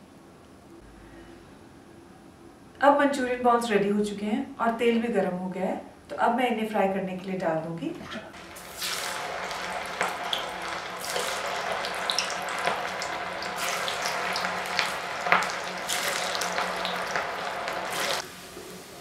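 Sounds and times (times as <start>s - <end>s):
oil popping and crackling: 8.3s - 18.3s
food deep-frying in hot oil: 8.3s - 19.0s.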